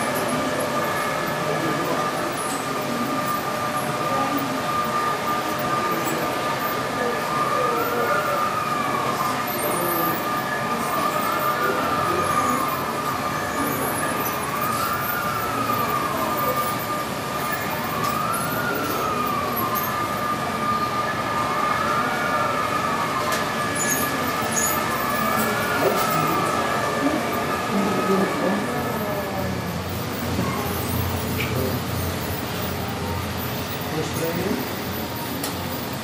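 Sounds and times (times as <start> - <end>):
siren wailing: 0.0 - 36.0
steady background hum: 0.0 - 36.0.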